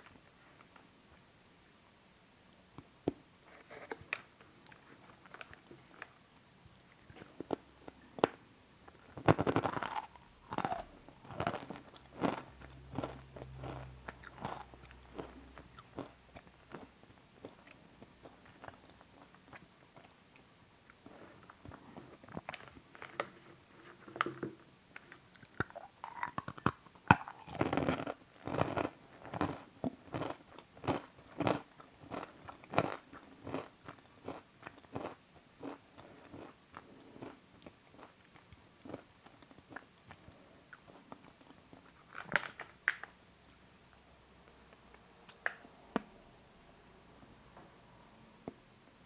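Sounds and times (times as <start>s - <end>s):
person chewing crunchy bar: 6.8s - 20.2s, 20.9s - 43.0s.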